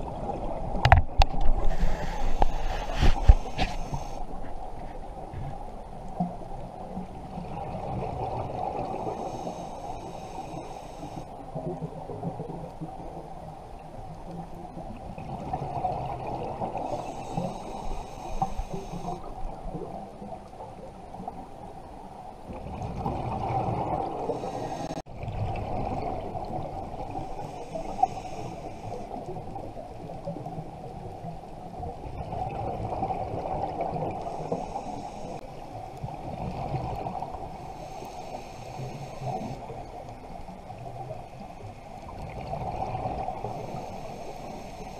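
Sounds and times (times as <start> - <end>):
regulator inhalation hiss: 1.6 - 4.3, 9.1 - 11.3, 16.8 - 19.3, 24.3 - 25.0, 27.3 - 29.2, 34.3 - 35.5, 37.5 - 39.9, 43.4 - 44.9
exhaled bubbles rushing underwater: 6.2 - 9.4, 11.3 - 21.5, 22.5 - 34.6, 36.0 - 37.6, 42.0 - 44.5.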